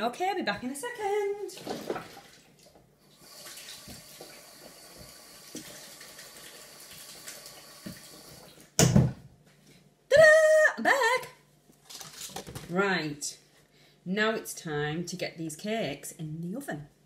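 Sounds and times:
tap running into sink: 6.9s - 8.1s.

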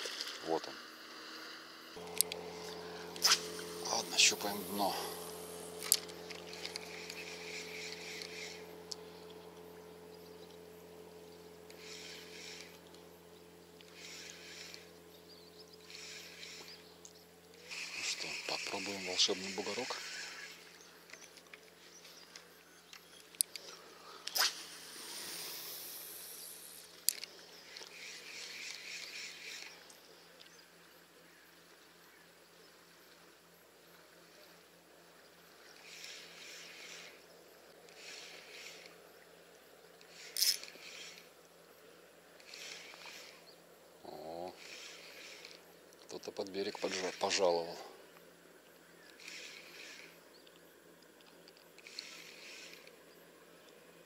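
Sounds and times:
reel handle cranking whirr: 0.0s - 30.7s, 34.2s - 54.0s
fishing reel click: 2.1s - 9.7s, 11.6s - 13.1s, 13.8s - 30.5s, 35.7s - 39.0s, 40.0s - 41.4s, 42.4s - 43.5s, 44.1s - 47.8s, 49.0s - 53.0s.

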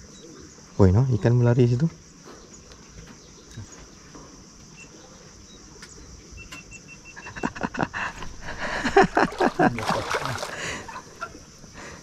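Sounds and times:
insects droning: 0.0s - 12.0s
fish splashing in water: 8.2s - 11.1s.

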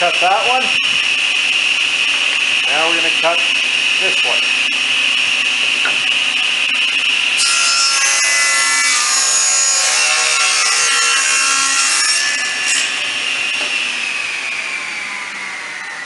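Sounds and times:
table saw whine: 0.0s - 16.0s
saw ripping wooden board: 7.4s - 14.2s.

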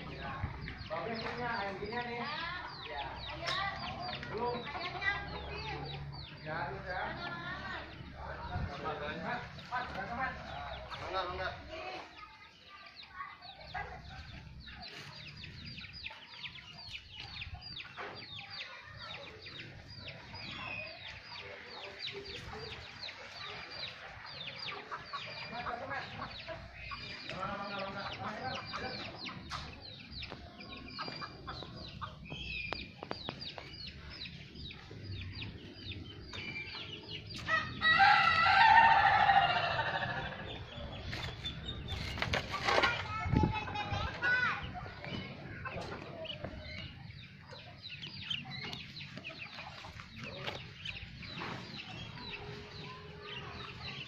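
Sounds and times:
chickens clucking: 0.0s - 54.0s
rooster crowing: 37.5s - 40.3s.

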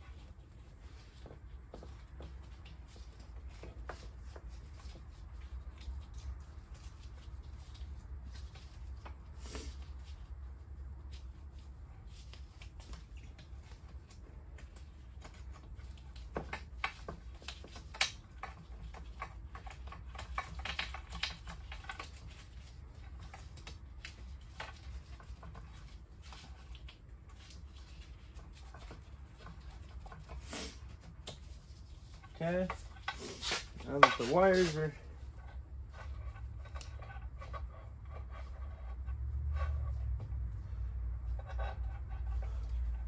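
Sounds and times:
wire and plastic clicks and scrapes: 12.0s - 43.0s.

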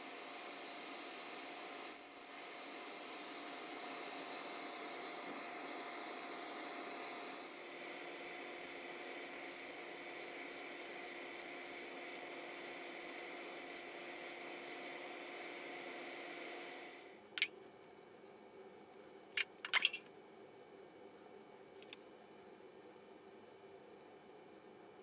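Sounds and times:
workshop machinery hum: 0.0s - 25.0s.

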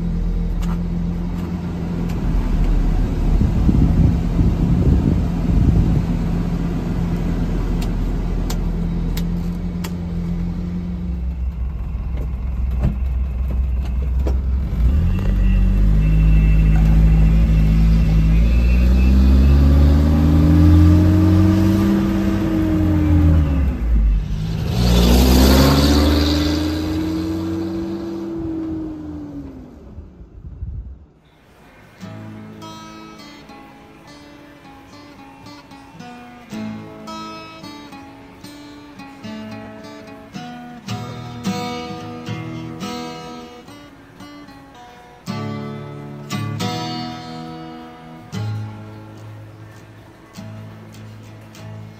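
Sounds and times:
truck engine idling and pulling away: 0.0s - 35.8s.

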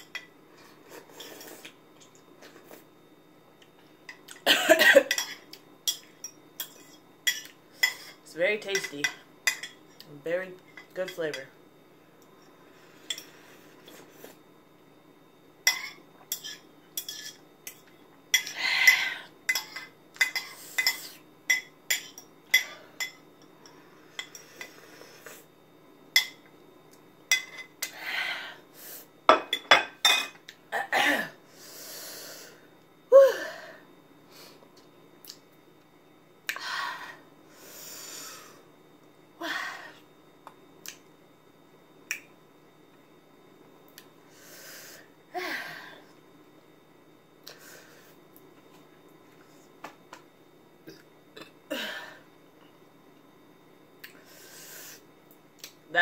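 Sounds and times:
utensils clinking against bowl: 5.0s - 10.0s.

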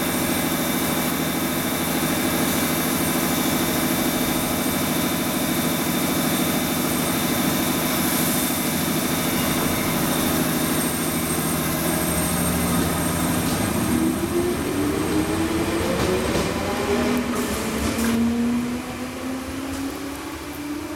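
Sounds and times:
electric train running hum: 0.0s - 20.9s
train motor whine rising: 0.9s - 20.9s.

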